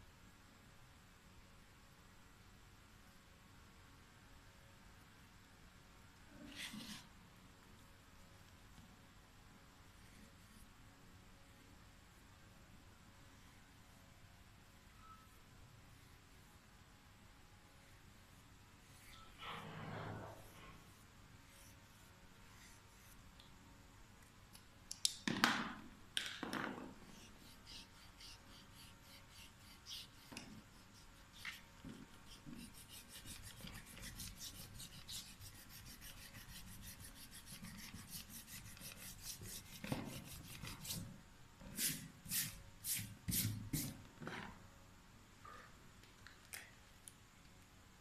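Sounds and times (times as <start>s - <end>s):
hand rubbing paper: 27.1s - 41.1s.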